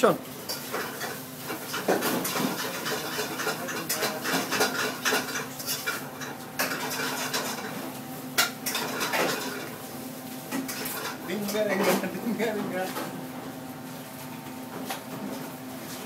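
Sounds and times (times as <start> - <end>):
dishes and utensils clattering: 0.5 - 7.8, 8.4 - 9.7.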